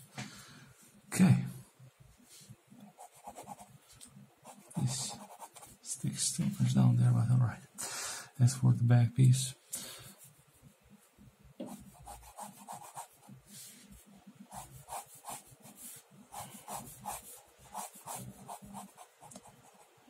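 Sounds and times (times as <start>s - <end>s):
pen nib scratching on paper: 2.9s - 3.7s, 4.5s - 5.7s, 11.6s - 13.3s, 14.5s - 19.9s.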